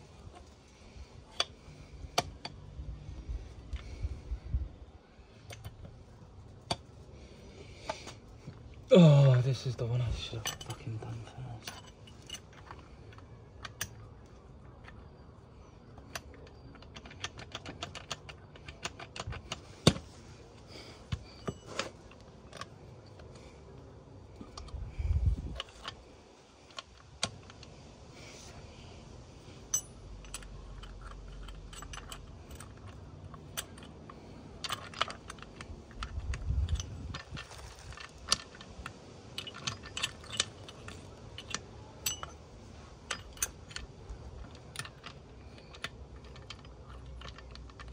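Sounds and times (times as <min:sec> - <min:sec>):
small metal gears clinking: 0:09.2 - 0:14.1, 0:29.6 - 0:47.9.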